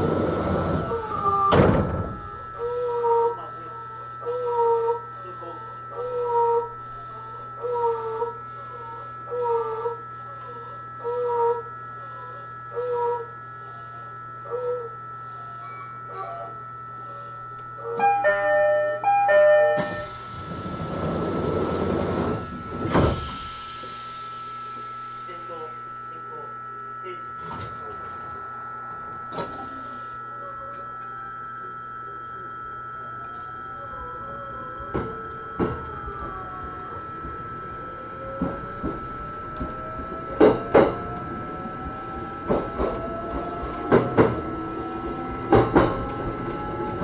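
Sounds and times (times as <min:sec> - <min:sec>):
train doors shutting: 0:00.0 - 0:02.4, 0:17.9 - 0:25.2, 0:27.4 - 0:28.3, 0:29.0 - 0:29.8, 0:33.2 - 0:47.0
two-note chime: 0:18.0 - 0:20.1
train doors sliding shut: 0:19.6 - 0:23.5.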